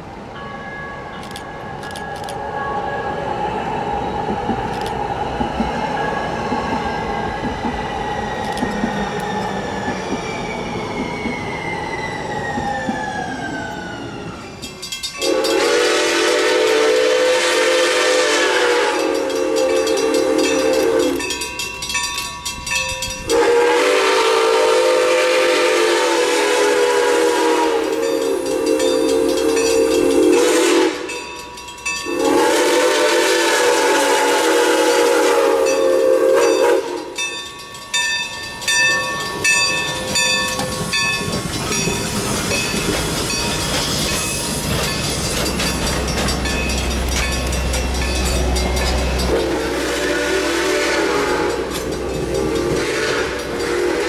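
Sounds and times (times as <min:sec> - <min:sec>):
train running past: 0:00.0 - 0:54.0
locomotive horn chime: 0:14.7 - 0:41.9, 0:46.3 - 0:54.0.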